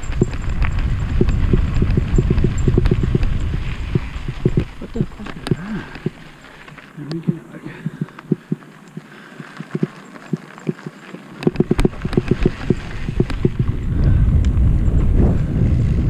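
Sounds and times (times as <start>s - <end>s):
wind on microphone: 0.0s - 6.3s, 11.5s - 16.0s
bike frame rattling: 0.0s - 7.1s, 9.2s - 16.0s.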